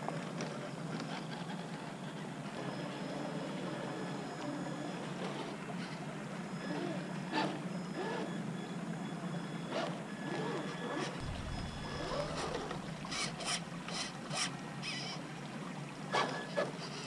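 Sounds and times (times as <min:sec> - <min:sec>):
outdoor background noise: 0:00.0 - 0:17.0
toy car motor whining: 0:01.0 - 0:08.4, 0:09.7 - 0:11.2, 0:11.8 - 0:15.2.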